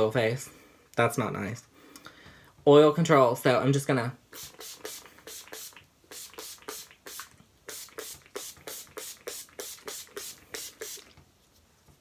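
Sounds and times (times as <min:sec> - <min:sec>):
spray bottle hissing sprays: 0:04.3 - 0:11.2.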